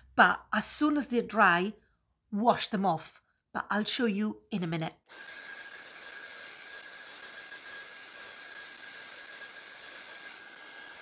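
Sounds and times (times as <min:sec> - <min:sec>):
hair dryer blowing: 0:05.1 - 0:11.0.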